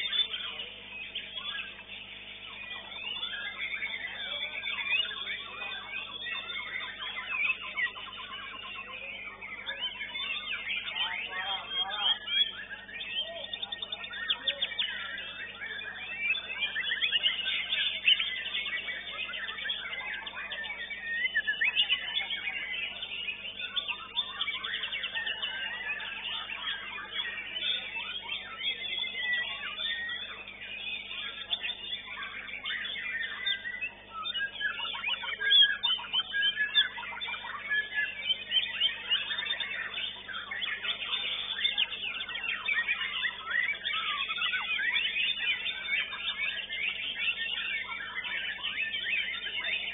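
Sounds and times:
caged songbirds singing: 0:00.0 - 0:49.9.

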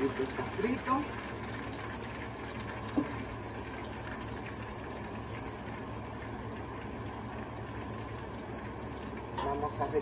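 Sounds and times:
food deep-frying in oil: 0:00.0 - 0:10.0.

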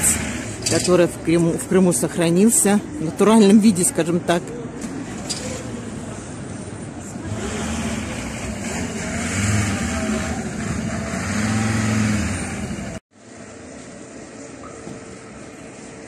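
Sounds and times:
street noise: 0:00.0 - 0:16.0
vehicle engine driving past: 0:07.2 - 0:13.0.

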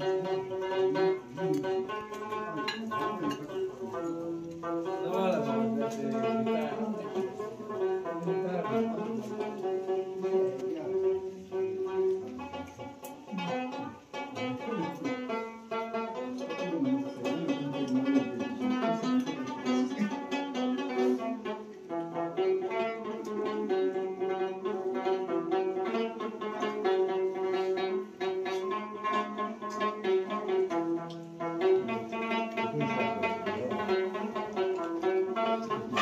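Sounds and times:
plucked string music: 0:00.0 - 0:36.0.

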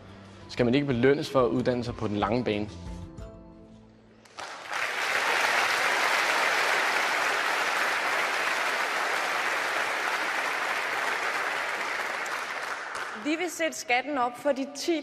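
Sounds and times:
audience applauding: 0:04.2 - 0:13.4.

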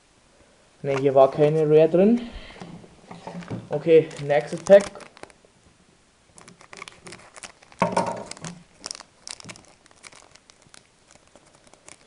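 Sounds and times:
foil wrapper crinkling: 0:03.4 - 0:05.4, 0:06.3 - 0:12.0.

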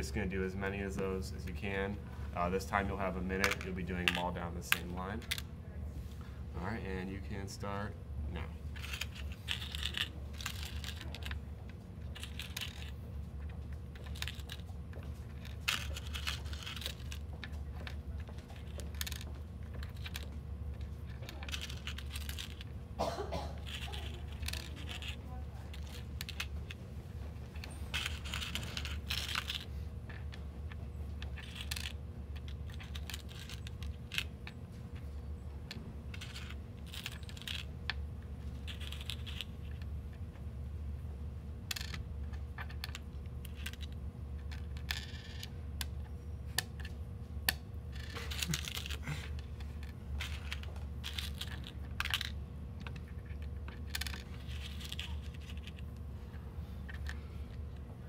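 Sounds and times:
steady low hum: 0:00.0 - 0:58.0
metal pins clinking and rattling: 0:08.7 - 0:11.4, 0:12.1 - 0:26.7.

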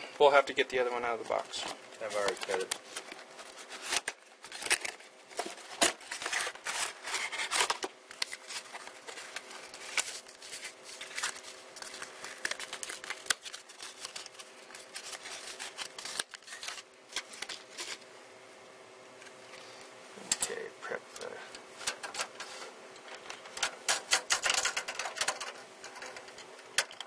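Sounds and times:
packaging scrapes and rustles: 0:01.2 - 0:18.0.

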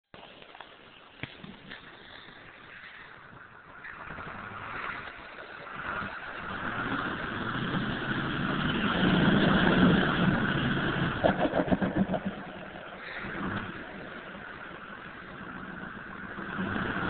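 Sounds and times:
fast pulsing engine stutter: 0:04.1 - 0:17.0
pickup truck engine revving: 0:05.8 - 0:12.4, 0:15.2 - 0:17.0.

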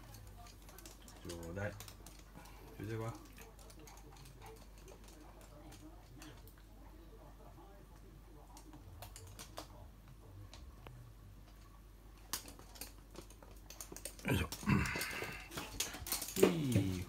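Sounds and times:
dog claws clicking on hard floor: 0:00.0 - 0:06.6, 0:12.3 - 0:17.0.

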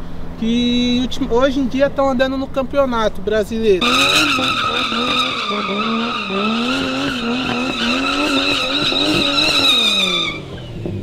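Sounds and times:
tyres squealing: 0:03.8 - 0:10.6
car engine revving: 0:03.8 - 0:11.0.

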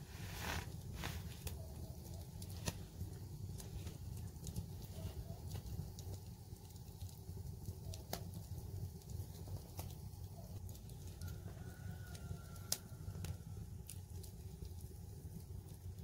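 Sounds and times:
wood fire crackling: 0:00.0 - 0:16.0
sharp fire pops: 0:02.2 - 0:06.1.

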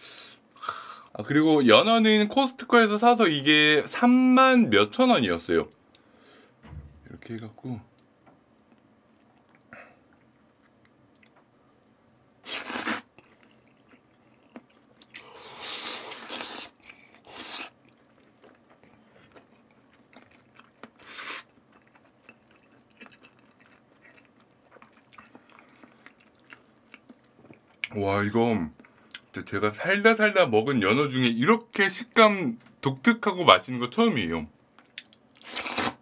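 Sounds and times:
loud slurps: 0:12.4 - 0:13.1, 0:35.4 - 0:36.0
wet chewing: 0:12.5 - 0:27.9.

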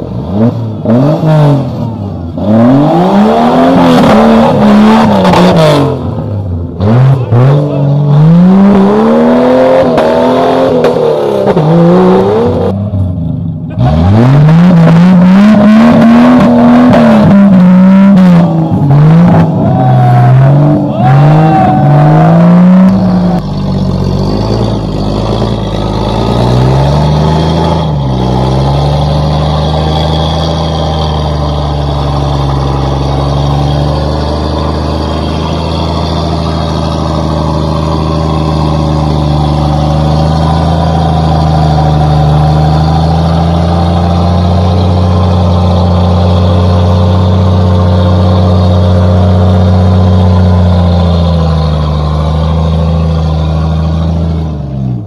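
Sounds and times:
engine revving: 0:00.0 - 0:55.0.

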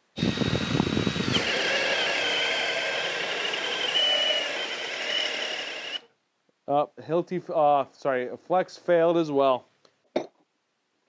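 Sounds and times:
hammer drill boring into wood: 0:00.2 - 0:06.1.

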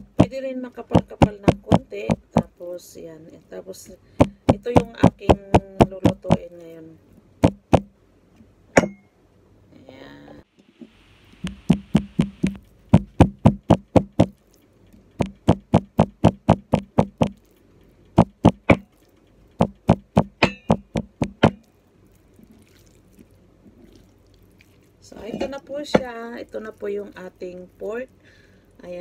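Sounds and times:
cleaver pounding meat on board: 0:00.0 - 0:02.5, 0:04.2 - 0:06.5, 0:07.4 - 0:07.9, 0:11.4 - 0:14.4, 0:15.2 - 0:17.4, 0:18.2 - 0:18.8, 0:19.6 - 0:21.6.

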